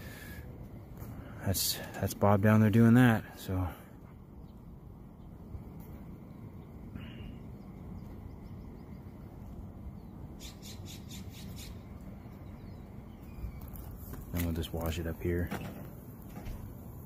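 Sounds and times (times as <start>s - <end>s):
low street rumble: 0.0s - 17.0s
bird chirp: 4.3s - 14.6s.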